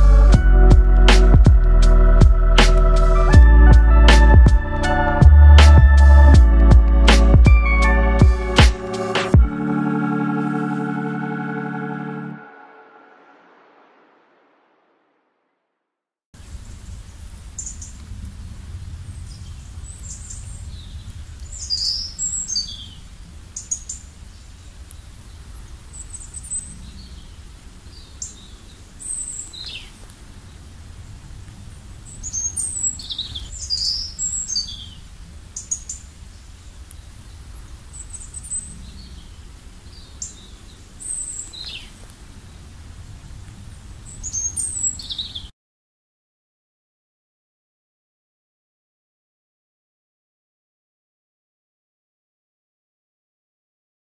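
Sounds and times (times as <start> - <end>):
steady low rumble: 0.0 - 9.8
birds chirping: 31.8 - 45.5.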